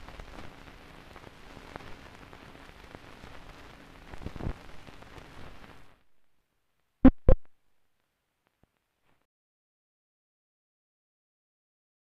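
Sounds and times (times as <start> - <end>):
crackling film hiss: 0.0 - 9.3
pops and clicks: 7.0 - 7.5.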